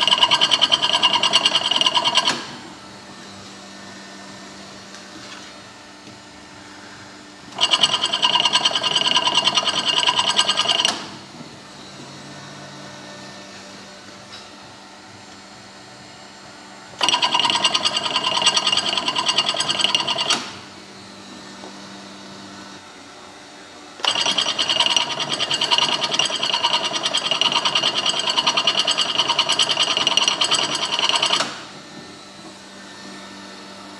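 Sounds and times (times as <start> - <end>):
filling machine mechanical rattle: 0.0 - 2.6, 7.5 - 11.1, 17.0 - 20.6, 24.0 - 31.6.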